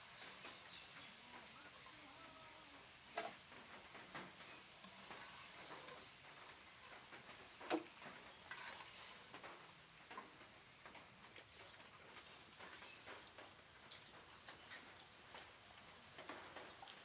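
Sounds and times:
potatoes sizzling in oil: 0.0 - 17.0
metal skimmer scraping a pan: 4.5 - 9.4.

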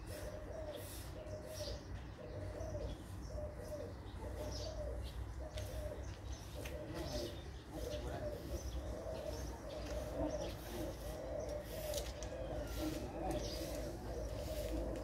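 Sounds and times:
dove cooing: 0.0 - 15.0.

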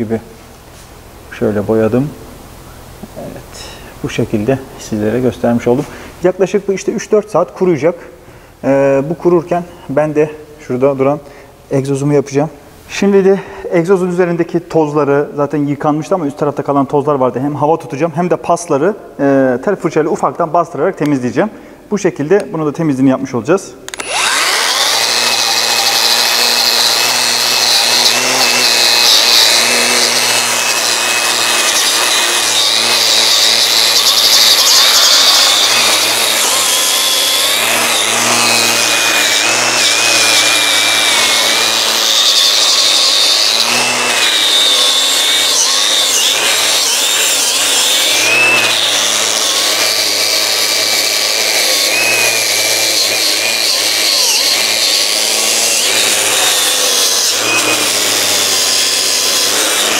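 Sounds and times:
angle grinder wire brush on metal: 23.9 - 59.9.

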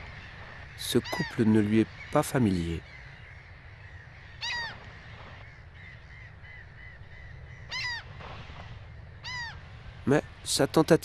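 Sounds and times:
gulls calling: 0.0 - 11.0.

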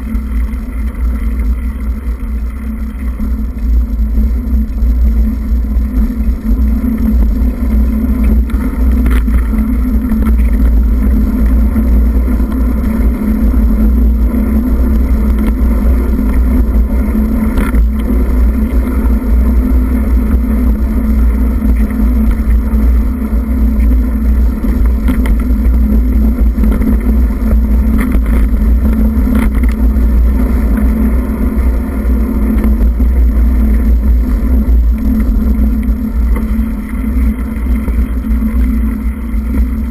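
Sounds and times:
steady low hum: 0.0 - 39.9
wind buffeting microphone: 0.0 - 39.9.

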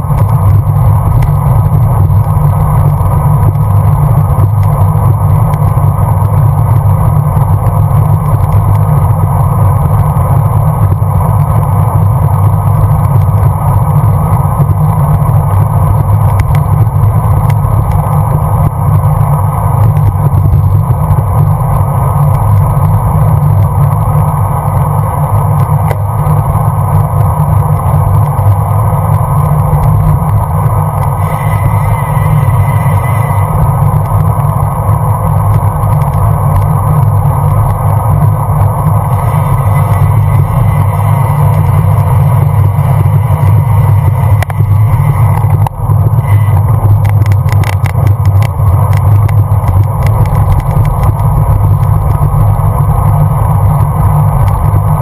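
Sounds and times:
road noise: 0.0 - 55.0.

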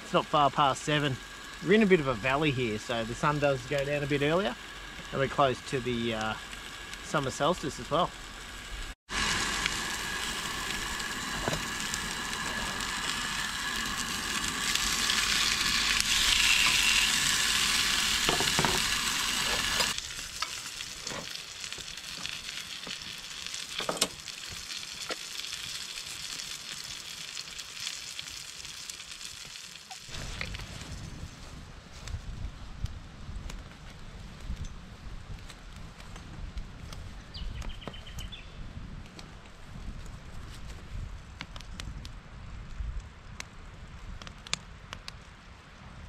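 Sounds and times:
sausages sizzling in a frying pan: 0.0 - 31.4.

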